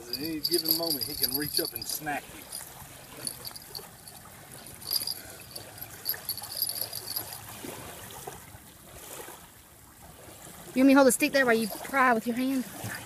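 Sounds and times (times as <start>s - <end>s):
small metal bells jingling: 0.0s - 7.5s
faint trickle of water: 0.0s - 13.0s.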